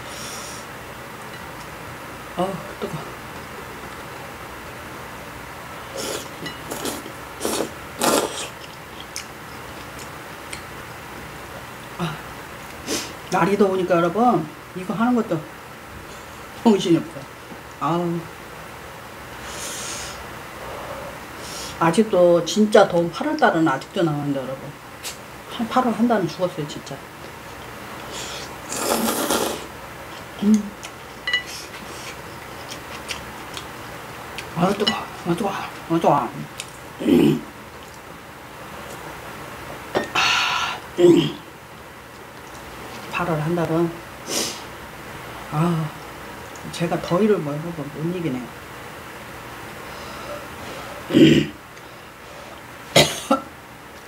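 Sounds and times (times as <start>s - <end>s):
person slurping noodle soup: 5.9s - 8.6s, 28.1s - 29.7s.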